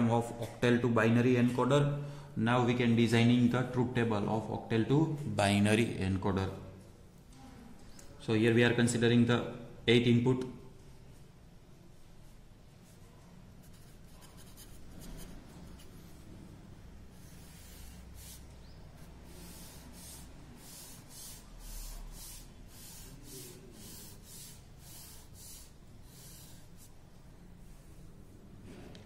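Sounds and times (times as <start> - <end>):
pencil scratching on paper: 13.6 - 16.3, 17.1 - 27.0.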